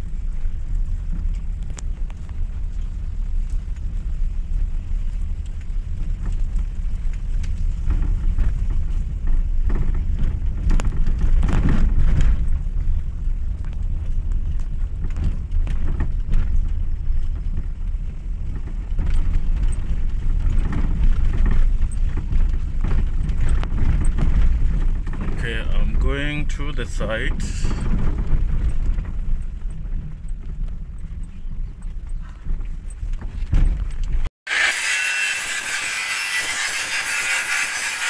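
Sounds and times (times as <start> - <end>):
road vehicle rumbling: 0.0 - 34.3
knocks and bumps: 31.8 - 34.3.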